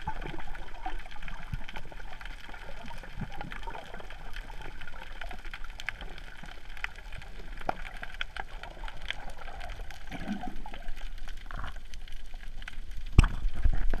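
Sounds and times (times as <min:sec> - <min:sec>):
small clicks and crackles: 0:00.0 - 0:14.0
underwater gurgling: 0:00.0 - 0:14.0.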